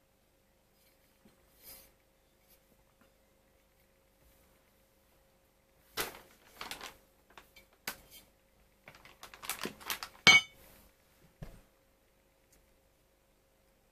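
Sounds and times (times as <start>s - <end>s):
plastic bag crinkling: 6.2s - 7.0s, 8.9s - 10.3s
metal bar clinking: 10.3s - 10.6s.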